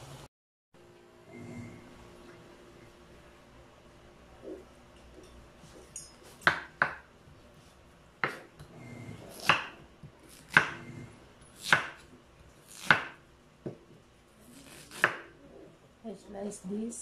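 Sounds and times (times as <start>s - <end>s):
knife chopping on cutting board: 8.2s - 8.5s, 9.3s - 10.9s, 11.6s - 12.1s, 12.7s - 13.8s, 14.6s - 15.3s.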